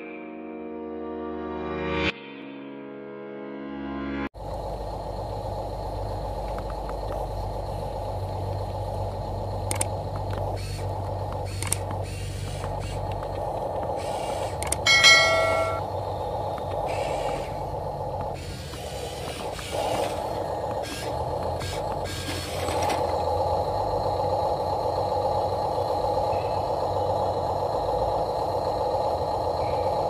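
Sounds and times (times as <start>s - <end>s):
toy truck motor whine: 4.5s - 30.0s
small clicks: 9.6s - 14.8s
loud tone with overtones: 14.8s - 15.9s.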